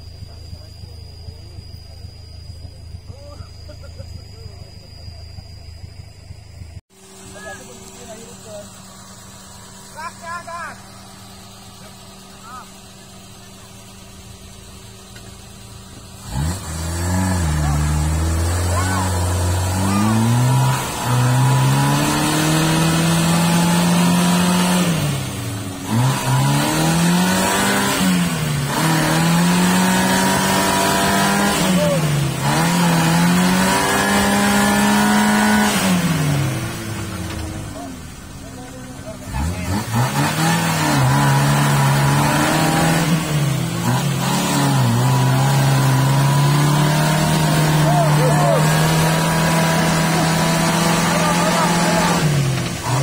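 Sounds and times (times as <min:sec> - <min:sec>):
engine revving hard: 0:07.2 - 0:53.0.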